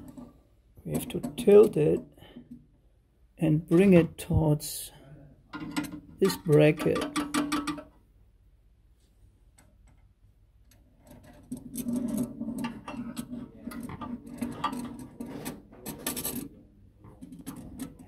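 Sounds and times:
metal plate clicking and rattling: 5.6s - 7.9s, 11.0s - 18.0s.

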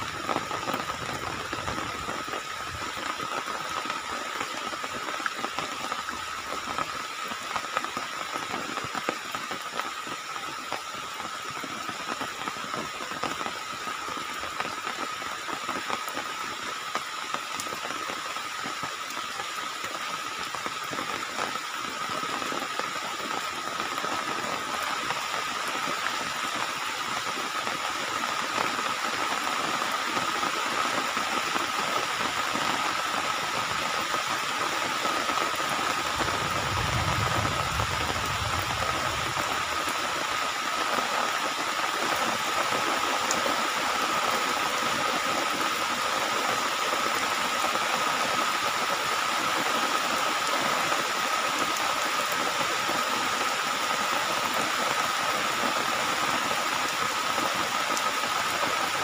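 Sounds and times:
heavy rain pouring: 0.0s - 59.0s
low rumble: 36.0s - 40.1s.

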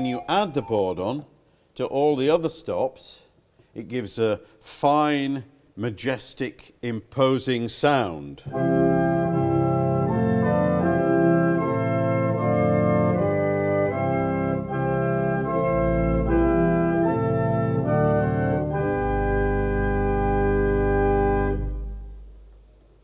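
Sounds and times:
pipe organ playing chords: 0.0s - 1.2s, 8.4s - 22.4s.

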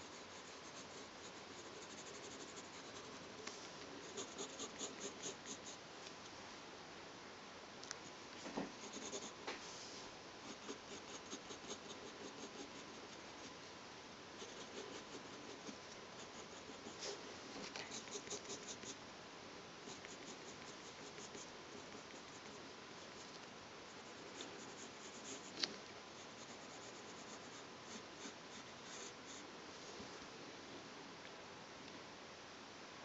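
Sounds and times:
pencil scratching on paper: 0.0s - 3.4s, 4.0s - 5.8s, 8.8s - 9.4s, 10.4s - 13.6s, 14.4s - 17.2s, 17.9s - 19.0s, 19.9s - 23.3s, 23.9s - 25.6s, 26.2s - 29.4s.

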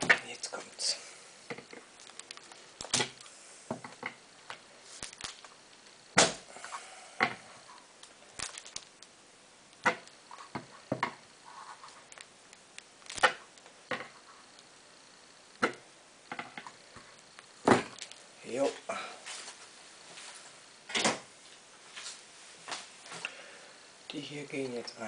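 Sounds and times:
soap cracking and snapping: 1.6s - 3.3s, 4.5s - 6.4s, 8.0s - 10.2s, 12.1s - 13.7s.

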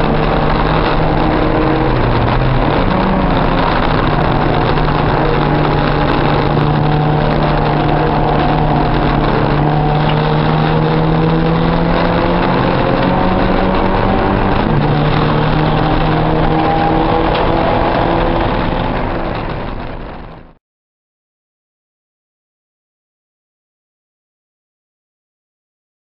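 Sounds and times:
race car engine at high revs: 0.0s - 20.4s.

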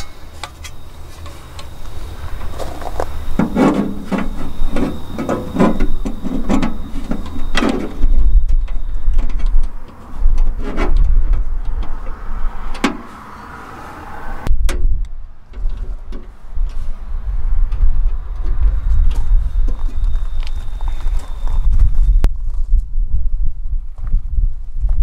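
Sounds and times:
metal scraping and clicking: 0.0s - 13.2s
low rumble: 0.0s - 25.0s.

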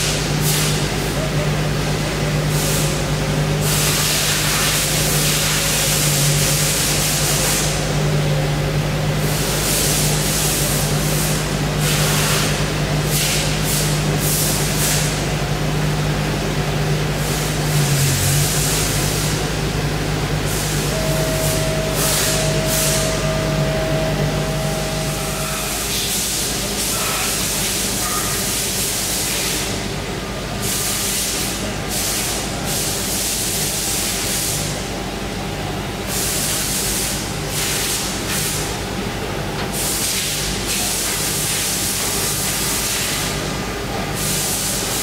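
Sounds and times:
machine hum: 0.0s - 28.0s
steady higher tone: 20.5s - 26.7s.

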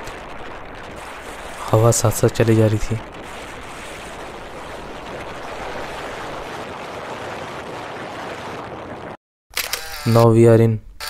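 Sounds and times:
wind buffeting microphone: 0.0s - 9.2s.

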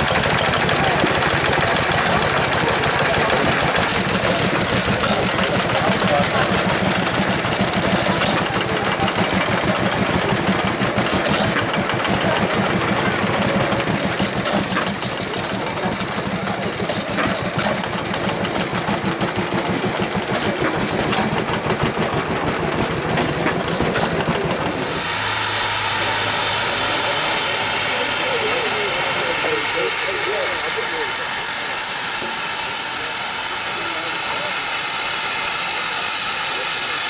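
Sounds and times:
stationary engines chugging: 0.0s - 37.0s
steam lorry hissing and humming: 0.0s - 37.0s
water and steam spraying: 24.7s - 37.0s.

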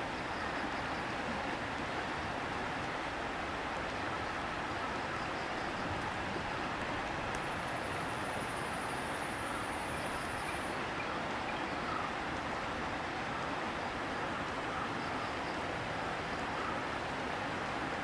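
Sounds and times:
river water over rocks: 0.0s - 18.0s.

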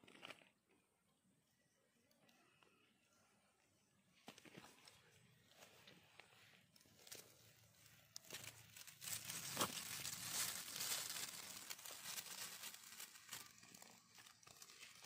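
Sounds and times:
dry leaves rustling: 6.9s - 15.0s.

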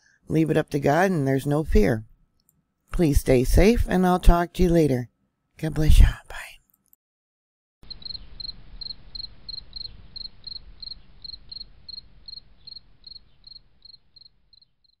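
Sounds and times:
cricket chirping: 7.8s - 15.0s.

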